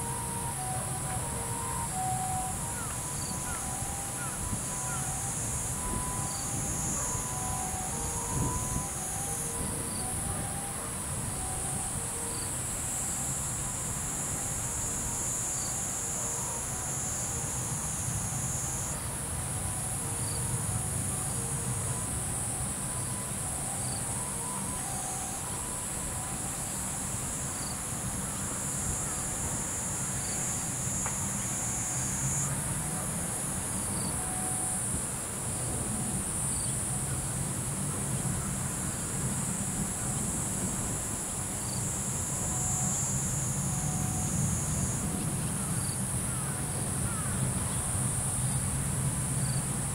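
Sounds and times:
insects shrilling: 0.0s - 19.1s.

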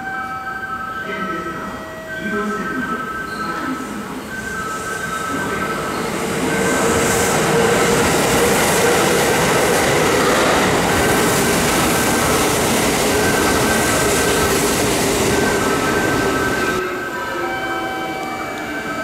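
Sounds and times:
train wheels rumbling on rail: 3.9s - 16.8s.

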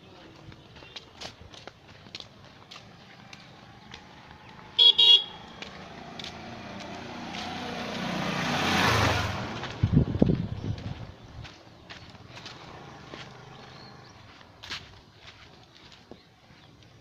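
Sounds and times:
motorcycle engine passing by: 2.8s - 11.2s, 12.0s - 14.4s
motorcycle horn toots: 4.8s - 5.5s.

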